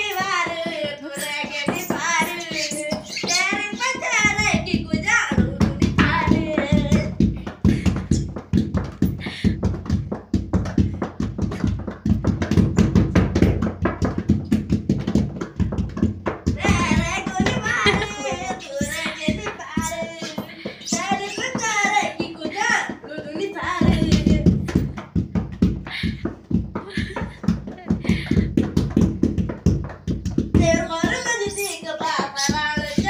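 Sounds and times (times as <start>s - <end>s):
voices singing: 0.0s - 8.1s, 16.5s - 24.6s, 30.6s - 33.0s
hand-drumming on a bed: 0.0s - 33.0s.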